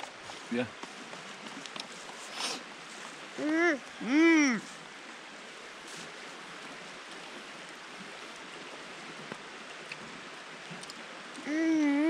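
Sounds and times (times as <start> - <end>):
flowing creek water: 0.0 - 12.0.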